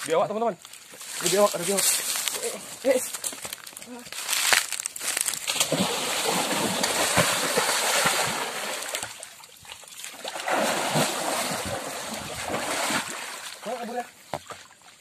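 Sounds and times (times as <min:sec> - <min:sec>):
water splashing from wading: 0:05.5 - 0:13.8.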